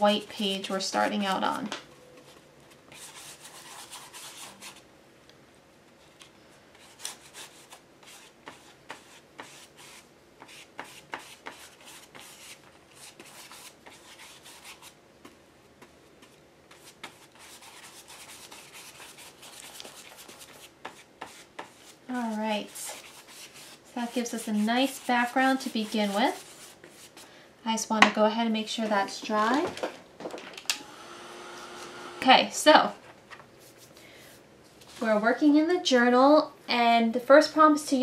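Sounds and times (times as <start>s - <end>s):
paintbrush strokes on paper: 6.8s - 27.2s.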